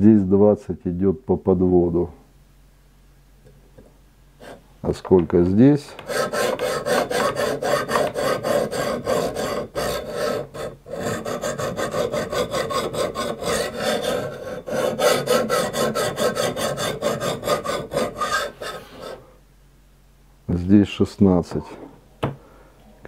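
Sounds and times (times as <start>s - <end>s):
sharpening stone scraping knife: 6.1s - 19.2s.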